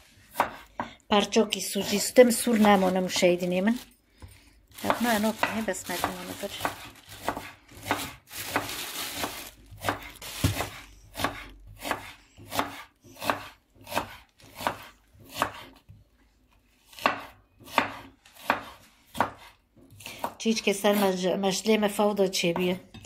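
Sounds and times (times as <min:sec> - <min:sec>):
knife slicing onion on board: 0:00.1 - 0:01.0, 0:04.2 - 0:15.9, 0:16.9 - 0:21.2.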